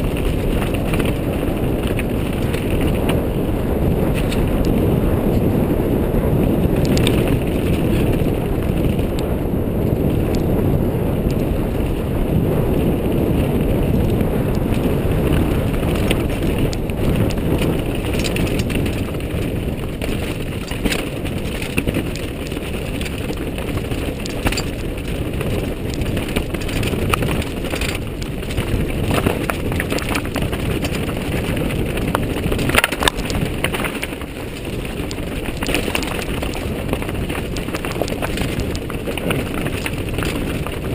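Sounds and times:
bike knocking on rocks: 0.0s - 3.2s, 14.6s - 40.9s
bike rattling over rocks: 0.0s - 40.9s
wind on microphone: 0.0s - 40.9s.

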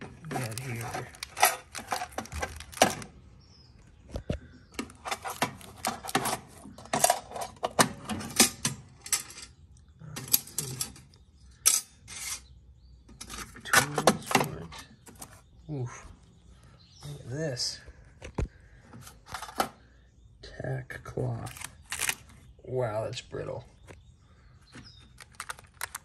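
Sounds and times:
metal tools clinking in toolbox: 0.0s - 3.1s, 4.8s - 12.4s.

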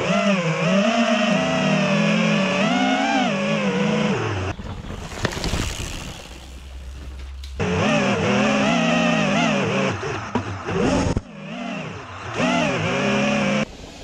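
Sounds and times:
drone propellers whining: 0.0s - 14.0s
low hum: 4.1s - 14.0s.

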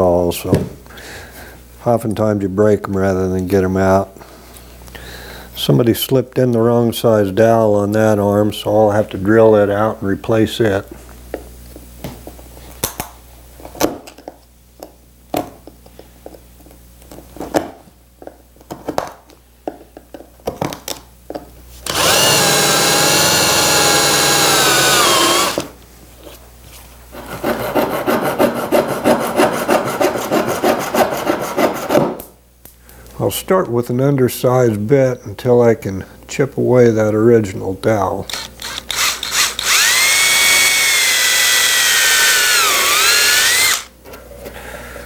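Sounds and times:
power tool whining: 21.8s - 25.8s, 38.3s - 43.9s
handsaw cutting wood: 21.9s - 25.7s, 27.2s - 32.2s, 39.0s - 43.9s.

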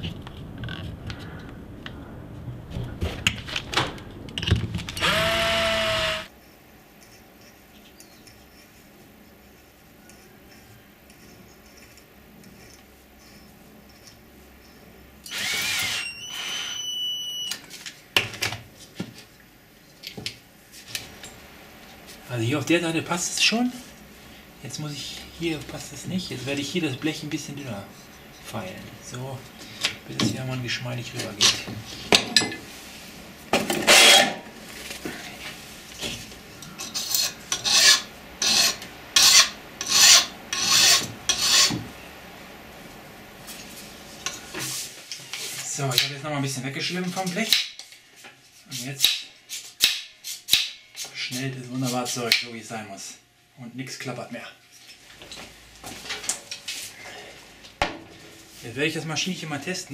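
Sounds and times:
power drill running: 5.0s - 6.3s, 15.3s - 16.8s
file rasping on sheet metal: 36.9s - 41.8s.

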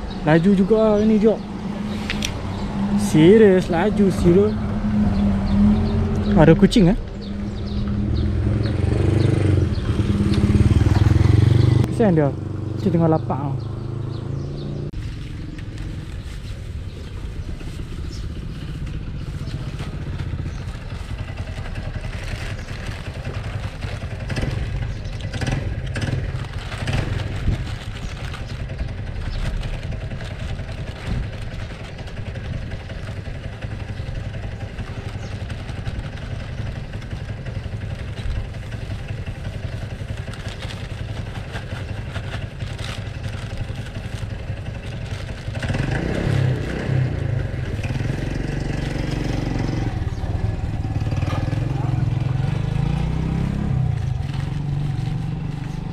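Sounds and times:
motorcycle engine idling: 0.0s - 55.9s
plastic bag rustling: 15.0s - 45.7s, 47.5s - 55.9s.

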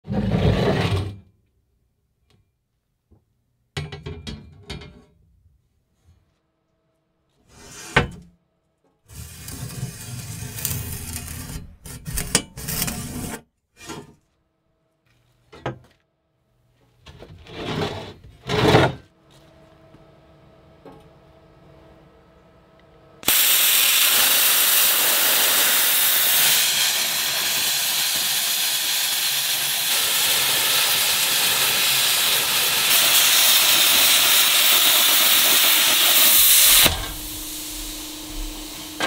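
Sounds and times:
metal bar scraping on wood: 9.1s - 14.2s.

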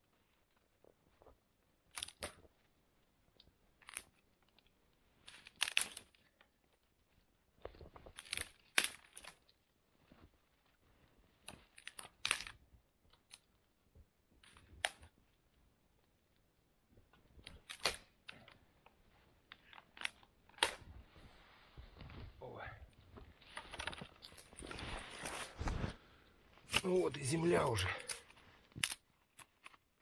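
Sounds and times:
rustling and crunching: 17.2s - 30.0s.

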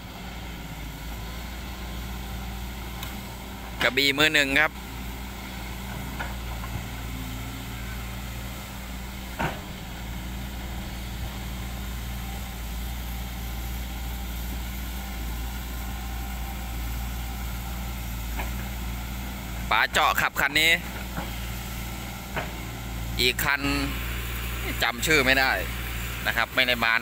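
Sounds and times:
excavator diesel engine running: 0.0s - 27.0s.

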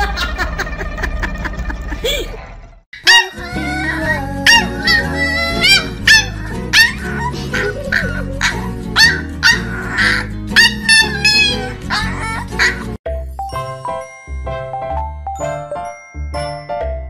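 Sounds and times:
puppy yapping: 3.0s - 12.8s
background music: 3.3s - 17.0s.

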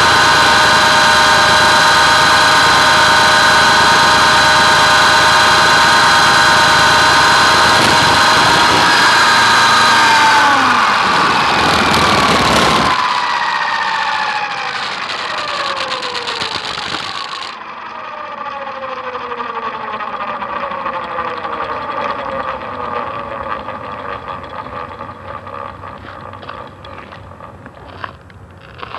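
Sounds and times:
loud rushing noise: 0.0s - 17.6s
rc helicopter motor whine: 0.0s - 28.9s.

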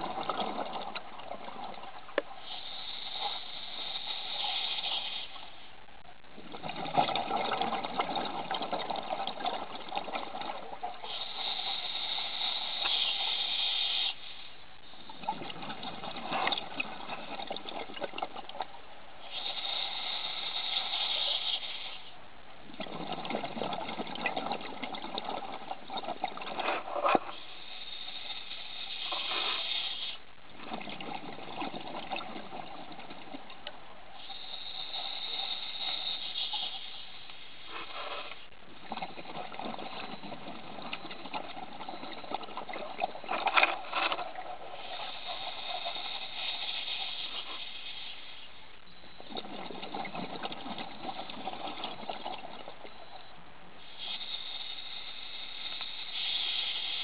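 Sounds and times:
exhaled bubbles gurgling: 0.0s - 5.4s, 6.3s - 13.3s, 14.8s - 21.9s, 22.6s - 37.0s, 37.7s - 48.1s, 48.8s - 57.0s
regulator inhale hiss: 2.2s - 5.7s, 11.0s - 15.0s, 19.2s - 22.2s, 26.6s - 30.3s, 34.2s - 38.6s, 43.9s - 48.8s, 52.8s - 57.0s.

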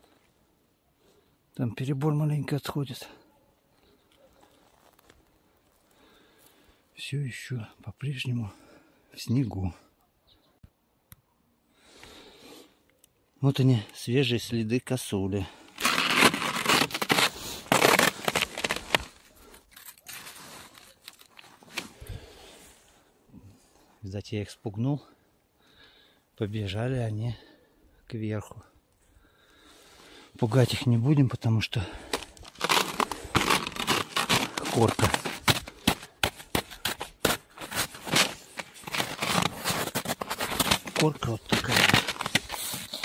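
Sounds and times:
skis crunching on frozen snow: 15.7s - 22.6s, 32.0s - 43.0s.

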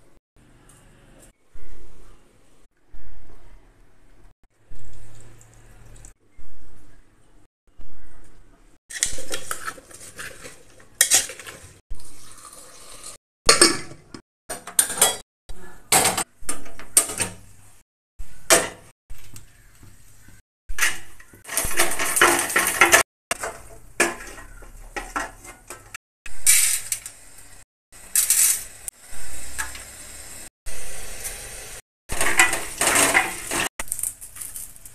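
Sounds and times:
pots and pans clattering: 13.5s - 15.2s, 20.8s - 26.6s, 32.1s - 33.7s.

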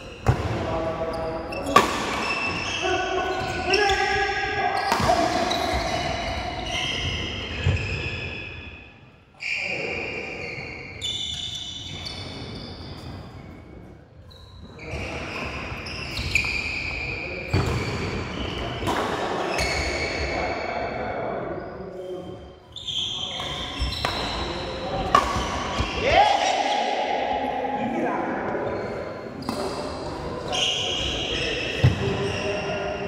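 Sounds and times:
shoes squeaking on court: 0.0s - 4.2s, 4.8s - 8.7s, 10.4s - 20.4s, 21.6s - 26.0s, 28.5s - 33.0s
racquet hitting shuttlecock: 25.0s - 25.9s.

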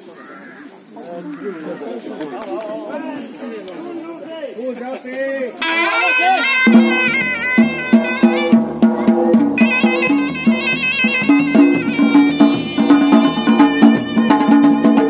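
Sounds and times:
drum beats: 5.6s - 15.0s
reed wind instrument melody: 5.6s - 15.0s.

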